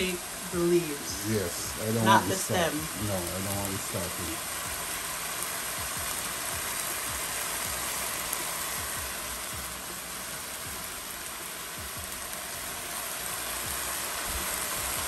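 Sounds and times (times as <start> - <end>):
vegetables sizzling in oil: 0.0 - 15.0.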